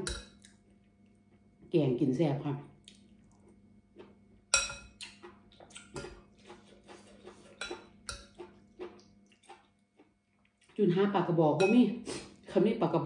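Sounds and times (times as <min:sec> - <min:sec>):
metal spoon clinking on glass bowl: 0:04.6 - 0:05.0, 0:11.6 - 0:11.9.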